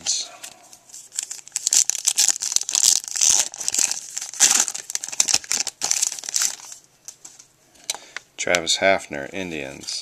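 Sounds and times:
foil wrapper crinkling: 0.5s - 6.9s.

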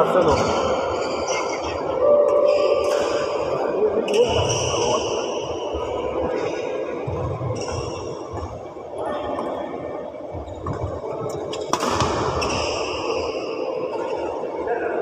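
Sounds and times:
echoing hall hubbub: 0.0s - 15.0s
rackets striking shuttlecock: 11.5s - 12.7s.

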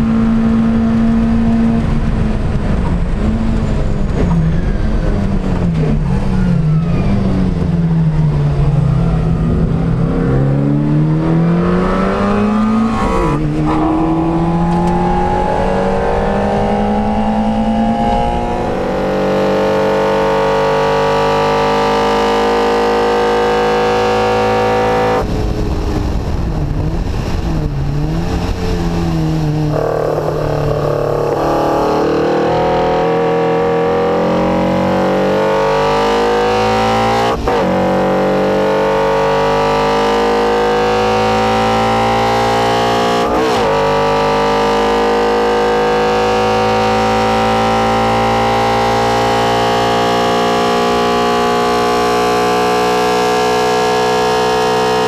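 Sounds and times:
racing car engine revving: 0.0s - 55.0s.

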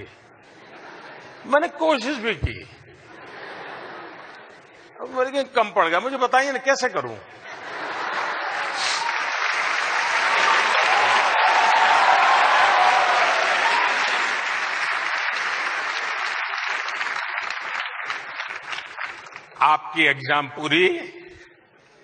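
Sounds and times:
large audience clapping: 7.7s - 19.7s.

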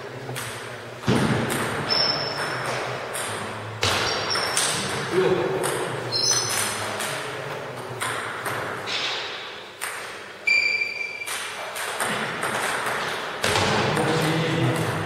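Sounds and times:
short high squeak: 6.1s - 6.6s, 10.5s - 11.3s.

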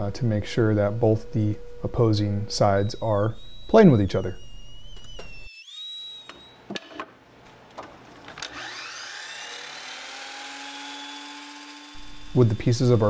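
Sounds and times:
miter saw motor whining: 0.6s - 6.6s, 8.4s - 13.0s
power tool whine: 1.0s - 6.6s, 8.4s - 13.0s.

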